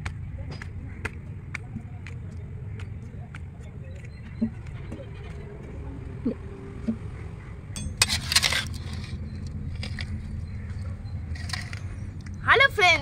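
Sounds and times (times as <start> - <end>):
low outdoor rumble: 0.0 - 13.0
metal spoon scraping steel pot: 7.8 - 10.1.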